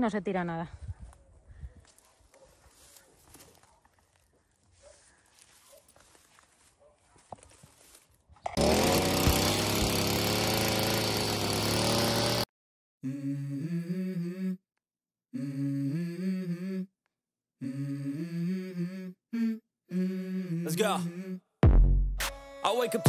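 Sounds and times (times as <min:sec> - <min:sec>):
brushcutter engine revving: 0:08.5 - 0:12.5.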